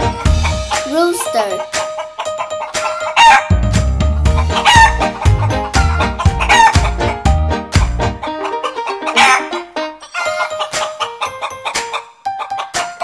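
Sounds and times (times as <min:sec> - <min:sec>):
upbeat background music: 0:00.0 - 0:13.0
rooster crowing: 0:02.8 - 0:03.6, 0:08.4 - 0:10.6.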